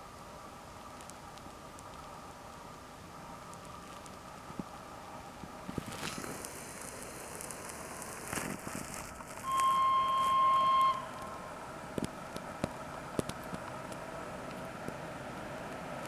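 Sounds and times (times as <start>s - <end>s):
train humming: 2.0s - 16.0s
locomotive horn blast: 9.4s - 11.4s.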